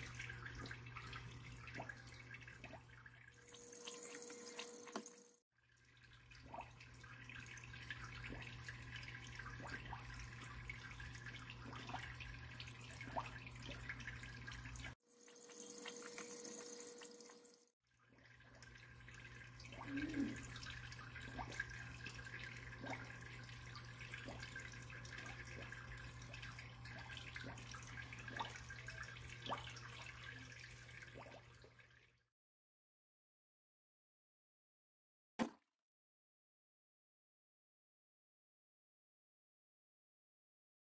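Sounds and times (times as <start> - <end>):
water splashing and dripping: 0.0 - 17.6, 18.2 - 32.0
small water plinks: 0.0 - 32.2
pump humming: 3.4 - 5.4, 6.7 - 17.6.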